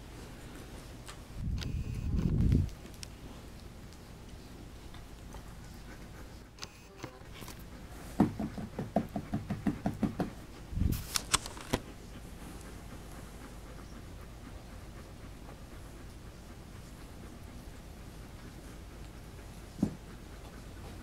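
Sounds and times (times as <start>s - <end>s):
sharp clicks: 1.1s - 3.1s.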